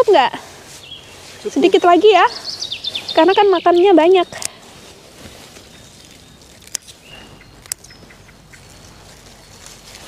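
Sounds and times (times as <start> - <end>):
quiet outdoor background: 0.0 - 10.0
scissors snipping stalks: 6.4 - 8.7.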